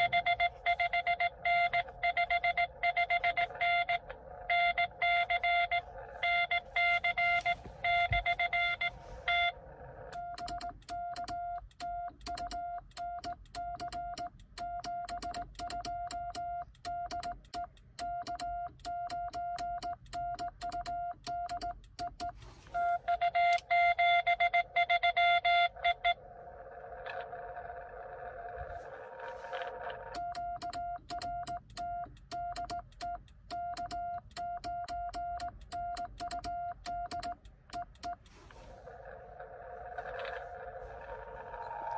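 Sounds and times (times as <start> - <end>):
weak morse sidetone: 0.0 - 26.2.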